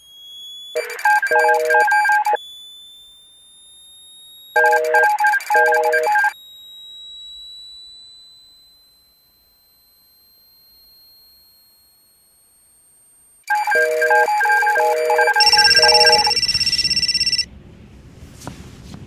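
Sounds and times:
faint high whine: 0.0 - 17.5
pulsing high-pitched phone ring: 0.0 - 17.5
electronic beep ringtone: 0.8 - 2.4, 4.6 - 6.4, 13.5 - 17.5.

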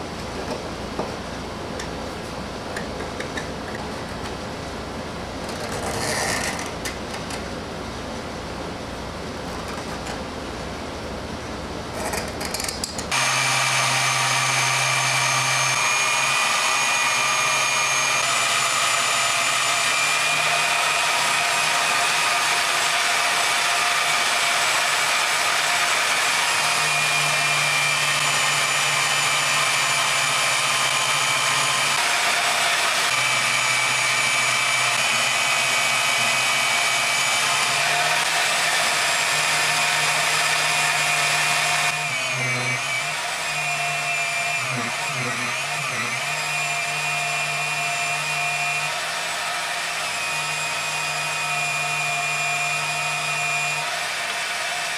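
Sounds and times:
band saw cutting: 12.0 - 54.9.

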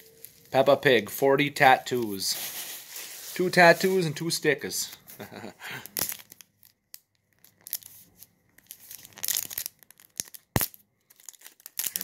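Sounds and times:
packaging crinkling and tearing: 5.8 - 12.0.

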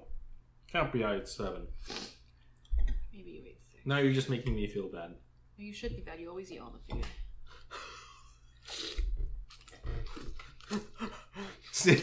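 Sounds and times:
people chewing: 7.4 - 12.0
slurping: 8.6 - 12.0.

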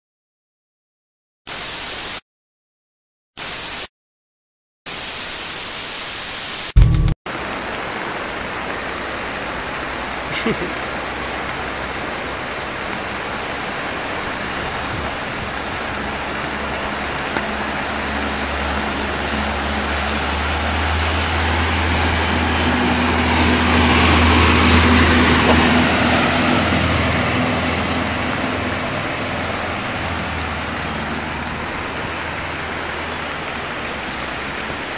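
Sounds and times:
water rushing: 7.3 - 34.9
wheels splashing through water: 7.3 - 34.9
car engine hum: 10.1 - 34.5.

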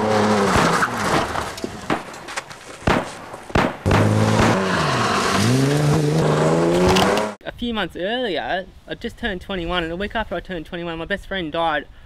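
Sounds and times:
sharp bangs: 0.4 - 7.4.

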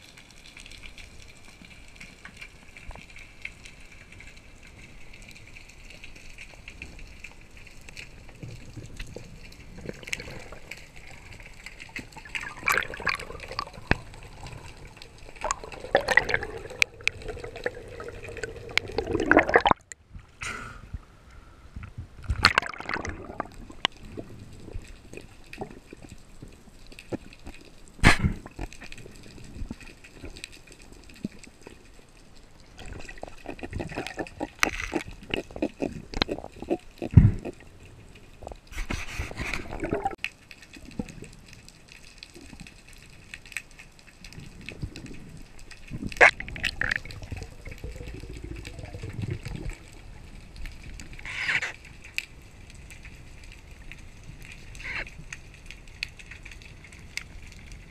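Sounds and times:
underwater bubbles: 0.0 - 57.9
water gurgling and sloshing: 0.0 - 57.9
sharp crack: 28.0 - 28.8.

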